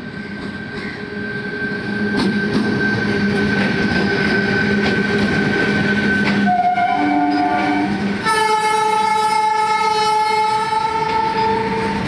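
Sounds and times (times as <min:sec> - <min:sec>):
electric locomotive whine: 0:00.0 - 0:12.0
train rumble: 0:00.0 - 0:12.0
wheels clicking on rails: 0:02.0 - 0:07.7.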